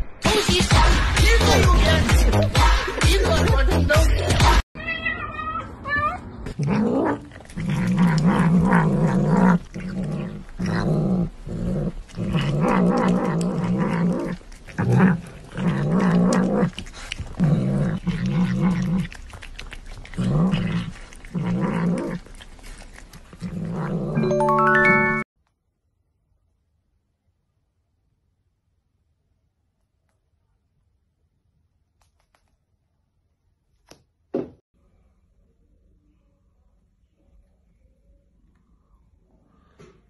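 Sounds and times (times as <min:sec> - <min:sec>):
cat growling: 0:06.4 - 0:24.3.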